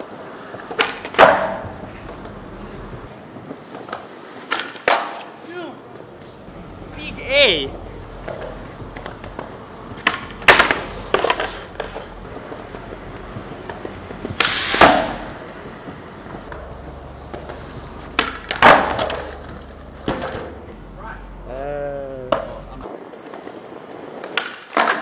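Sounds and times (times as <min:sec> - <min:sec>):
skateboard pops and slaps: 0:00.0 - 0:02.4, 0:03.6 - 0:05.3, 0:08.2 - 0:15.4, 0:17.3 - 0:20.6, 0:23.2 - 0:25.0
skateboard wheels rolling: 0:00.0 - 0:21.6, 0:22.2 - 0:25.0.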